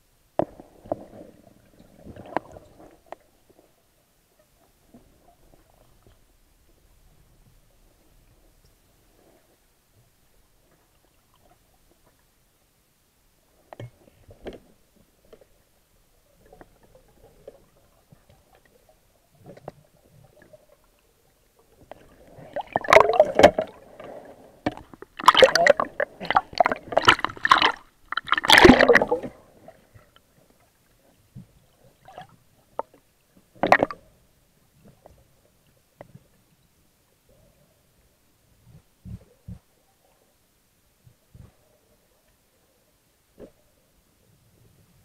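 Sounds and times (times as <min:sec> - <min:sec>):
water gurgling and splashing: 0:21.9 - 0:30.0.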